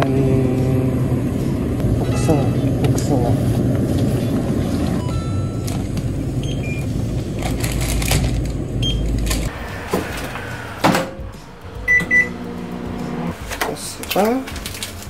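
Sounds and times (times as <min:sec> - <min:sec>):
low hum: 0:00.0 - 0:13.4
self-checkout beeping: 0:05.0 - 0:07.6, 0:08.7 - 0:09.3, 0:11.9 - 0:12.4.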